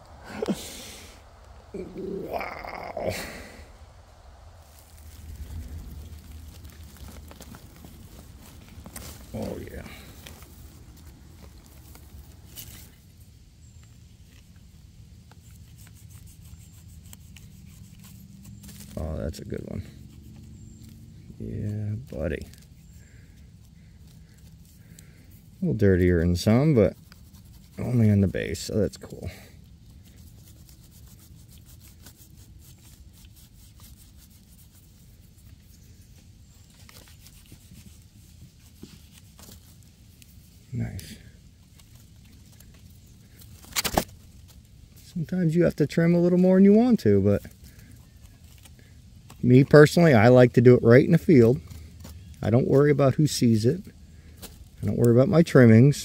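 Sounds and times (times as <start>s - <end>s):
steady low rumble: 0.0s - 15.4s
faint rustling: 0.0s - 50.0s
knife scraping mushroom: 4.6s - 13.0s, 15.3s - 21.0s, 21.6s - 45.1s.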